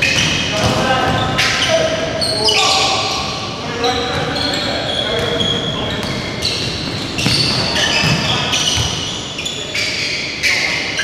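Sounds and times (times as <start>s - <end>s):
basketball bouncing: 0.0s - 1.3s, 5.2s - 9.1s
shoes squeaking on hardwood floor: 0.0s - 11.0s.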